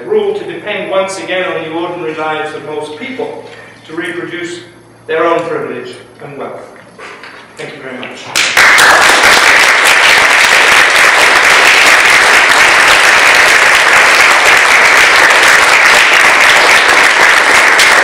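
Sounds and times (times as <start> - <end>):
audience applauding: 8.3 - 18.0.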